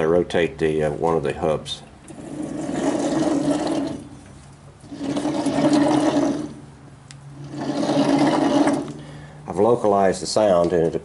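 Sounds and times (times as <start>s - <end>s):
tractor transmission grinding and rumbling: 1.9s - 9.9s.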